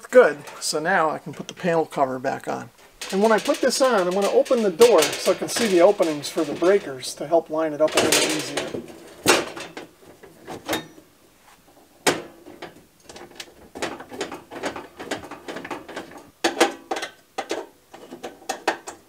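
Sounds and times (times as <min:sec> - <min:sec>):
metal panel cover clanking: 0:02.8 - 0:11.0.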